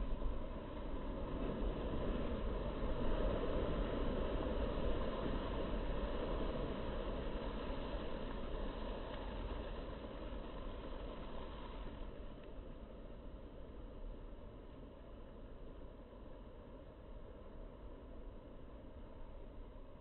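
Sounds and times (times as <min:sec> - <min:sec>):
waves breaking over rocks: 0:00.0 - 0:13.1.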